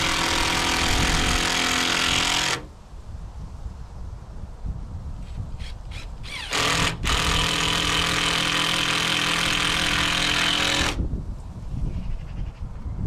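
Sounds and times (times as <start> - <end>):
power drill driving a screw: 0.0 - 2.7, 5.6 - 11.0.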